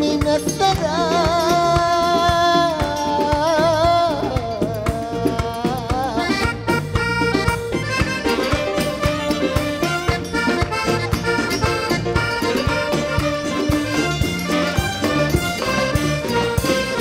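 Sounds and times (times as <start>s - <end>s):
accordion: 0.0s - 17.0s
steady drumbeat: 0.0s - 17.0s
saxophone: 6.0s - 17.0s.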